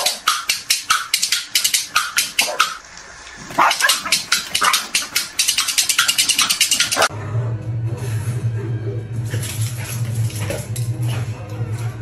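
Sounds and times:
dog barking rapidly: 0.0 - 7.1.

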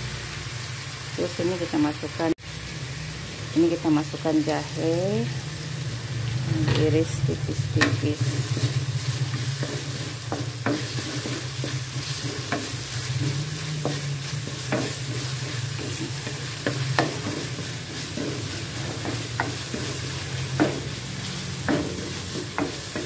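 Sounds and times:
paste sizzling in hot oil: 0.0 - 23.0
spatula stirring and scraping: 7.8 - 23.0
spatula clacking against pan: 9.4 - 23.0.

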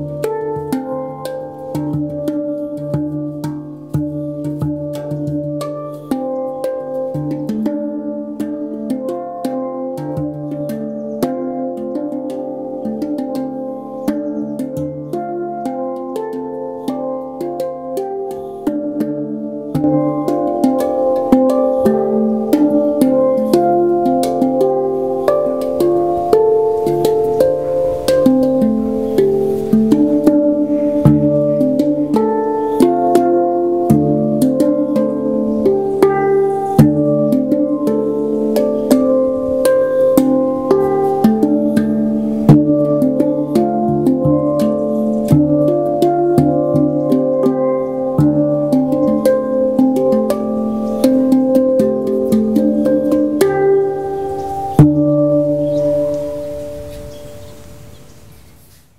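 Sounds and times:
handpan melody played by hand: 0.0 - 58.1.

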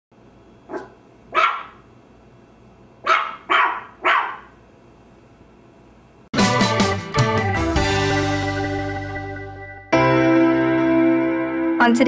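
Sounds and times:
dog barking: 0.7 - 1.8, 3.0 - 4.6.

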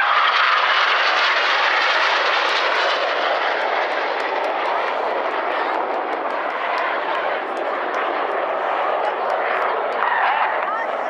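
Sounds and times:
jet engines rushing: 0.0 - 11.0.

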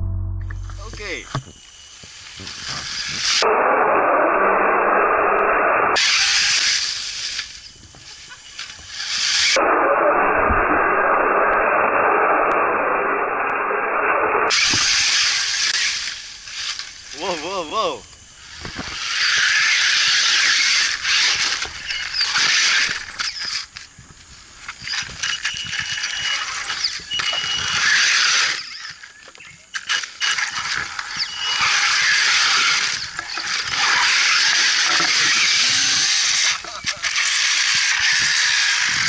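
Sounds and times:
rc truck motor whirring: 18.4 - 23.8, 24.7 - 39.0.

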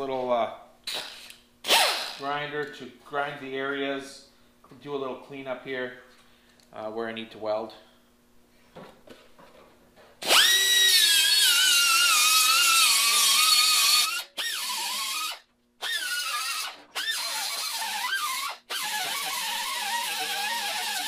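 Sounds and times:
grinder whining on sheet metal: 10.2 - 21.0.

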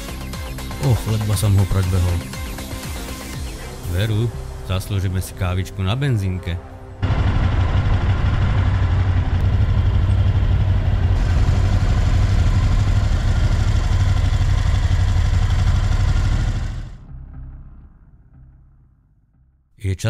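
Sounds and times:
motorcycle engine idling: 7.0 - 17.1.

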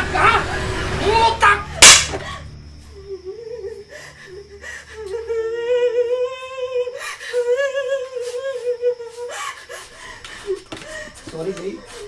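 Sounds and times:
woman wailing: 3.0 - 9.4.

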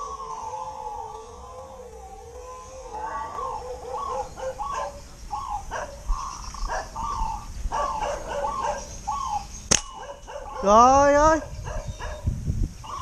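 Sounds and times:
dog barking: 3.8 - 5.0, 5.7 - 6.0, 6.7 - 7.0, 7.7 - 8.9, 10.0 - 12.3
slingshot rubber bands snapping: 9.7 - 9.9.

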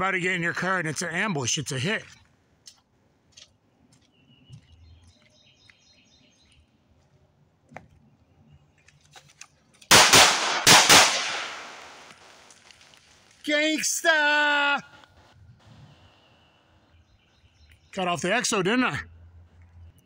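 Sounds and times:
gunshot echo ringing: 9.9 - 12.2
pistol shots: 9.9 - 12.4.

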